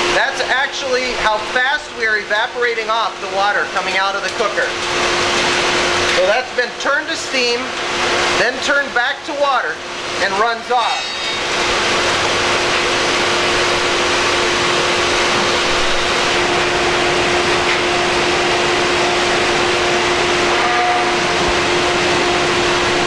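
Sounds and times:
sap boiling and foaming: 0.0s - 20.6s
constant low hum: 0.0s - 23.0s
evaporator rushing noise: 0.0s - 23.0s.

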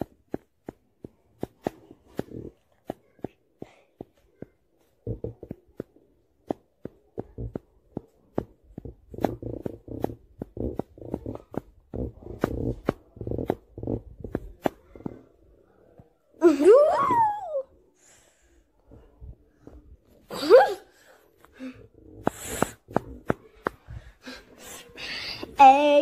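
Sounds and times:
sharp clicks and taps: 0.0s - 15.3s, 22.2s - 24.1s.

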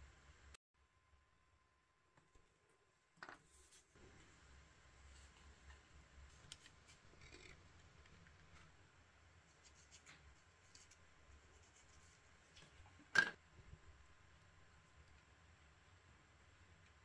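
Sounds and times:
faint scraping and ticking: 5.0s - 8.8s.

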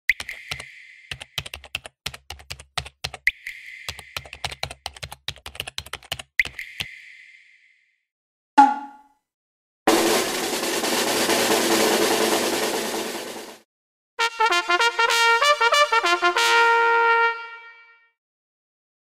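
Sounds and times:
keyboard key clicks: 0.1s - 3.2s, 3.9s - 6.9s.

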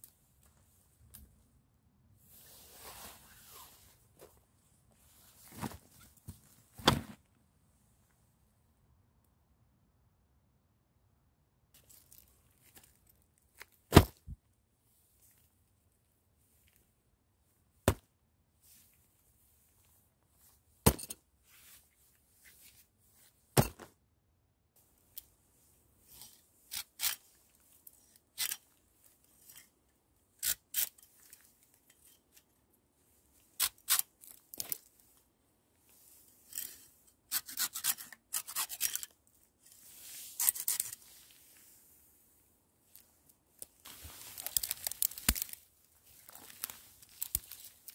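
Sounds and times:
knife cutting and scraping branches: 26.2s - 28.6s, 30.4s - 32.4s, 33.5s - 34.8s, 36.4s - 41.3s, 43.9s - 45.6s, 46.5s - 47.7s.

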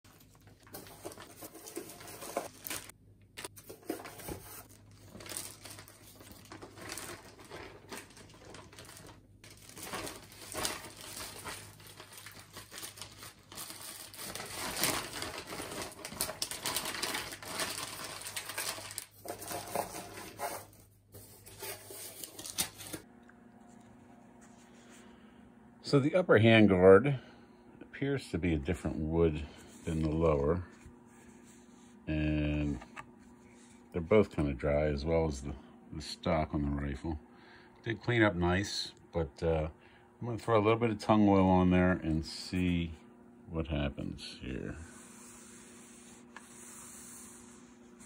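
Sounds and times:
plastic bags crinkling: 0.1s - 20.7s
steady low hum: 18.9s - 48.0s.

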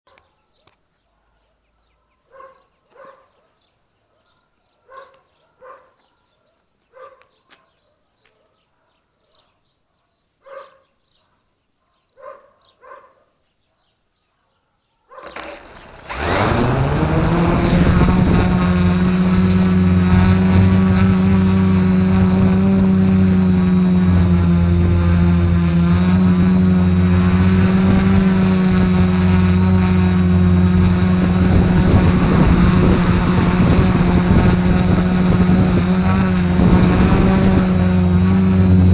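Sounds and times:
drone propellers humming: 15.2s - 38.9s.

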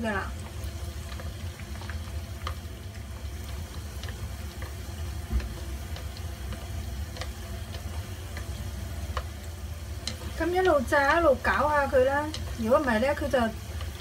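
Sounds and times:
nuts sizzling in oil: 0.0s - 14.0s
chopsticks stirring: 1.0s - 14.0s.

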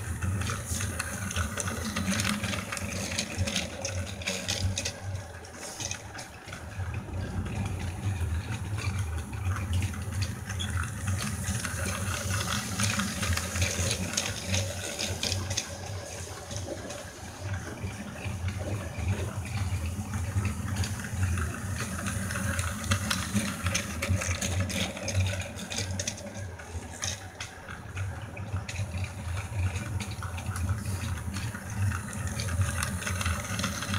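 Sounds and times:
toy train motor whir: 0.0s - 33.9s
toy train wheels rattling on track: 0.0s - 33.9s.

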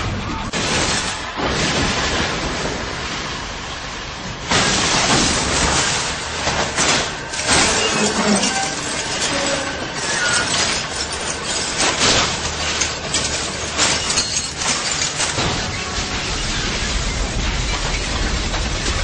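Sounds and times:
crash impacts: 0.0s - 19.0s
steady noisy din: 0.0s - 19.0s
glass shattering: 4.6s - 18.2s.

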